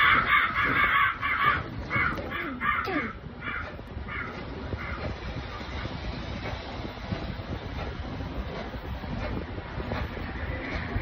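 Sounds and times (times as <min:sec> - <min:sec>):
crow caws: 0:00.0 - 0:05.1.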